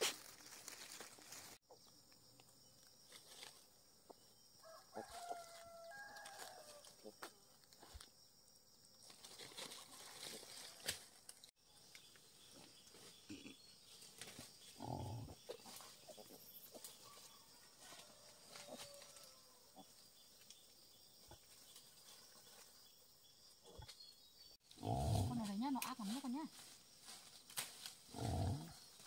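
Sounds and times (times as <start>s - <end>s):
rustling in leaf litter: 0.0s - 1.6s, 9.0s - 11.5s
wild boar grunt: 14.7s - 16.4s, 24.7s - 25.4s, 28.1s - 28.9s.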